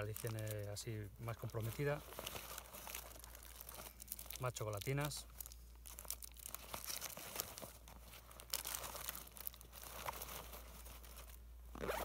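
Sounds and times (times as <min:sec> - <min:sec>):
plastic wrappers crinkling: 0:00.0 - 0:12.0.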